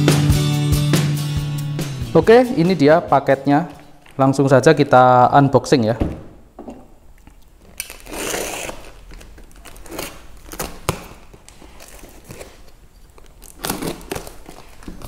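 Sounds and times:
tape and cardboard rustling: 0:07.2 - 0:15.0
knife slicing packing tape: 0:07.8 - 0:12.7, 0:13.4 - 0:14.9.

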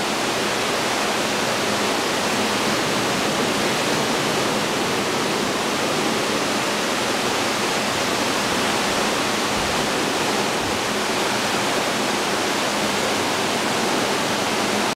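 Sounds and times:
water rushing down a channel: 0:00.0 - 0:14.9.

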